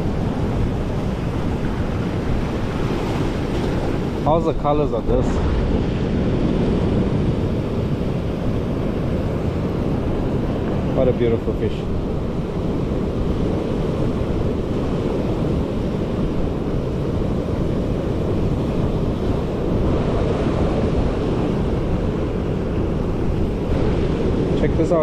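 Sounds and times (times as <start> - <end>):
surf breaking on rocks: 0.0 - 7.3
wind buffeting microphone: 0.0 - 25.0.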